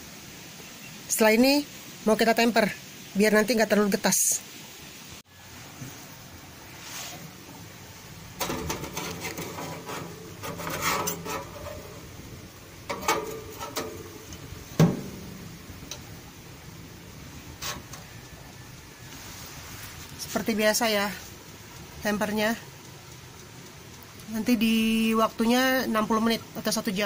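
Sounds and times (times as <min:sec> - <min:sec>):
metal scraping on wire rack: 0:08.3 - 0:16.2, 0:17.4 - 0:18.3
glass oven door clacking shut: 0:08.4 - 0:12.1, 0:12.8 - 0:16.1.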